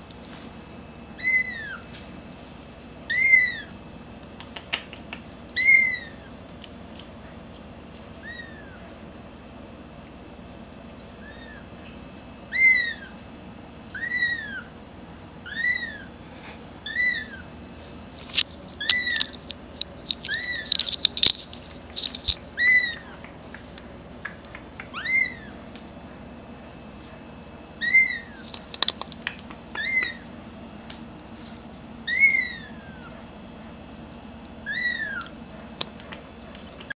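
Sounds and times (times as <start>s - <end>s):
kitten meowing: 1.2s - 1.8s, 3.1s - 3.7s, 5.6s - 6.2s, 8.2s - 8.8s, 11.2s - 11.6s, 12.5s - 13.1s, 13.9s - 14.7s, 15.4s - 16.1s, 16.8s - 17.4s, 18.8s - 19.3s, 20.3s - 20.8s, 22.6s - 23.2s, 24.9s - 25.6s, 27.8s - 28.4s, 29.8s - 30.2s, 32.1s - 33.1s, 34.6s - 35.3s
sharp clicks and scratches: 4.4s - 5.4s, 18.2s - 22.5s, 28.4s - 29.6s.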